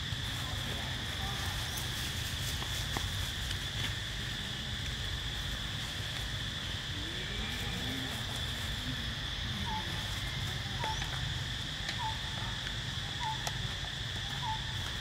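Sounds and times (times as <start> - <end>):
insect buzzing: 3.6 - 15.0.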